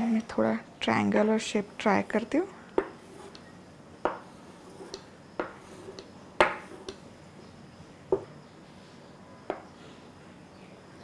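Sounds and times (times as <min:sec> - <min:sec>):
pizza cutter on wooden board: 0:04.1 - 0:07.0.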